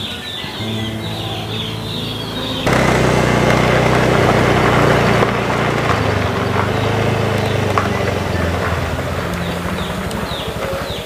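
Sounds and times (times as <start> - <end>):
motorcycle engine idling: 0.4 - 11.0.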